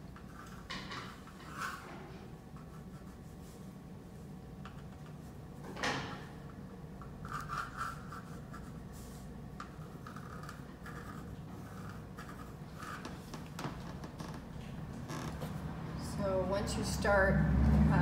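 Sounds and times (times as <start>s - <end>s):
pencil scratching on paper: 9.8s - 13.3s.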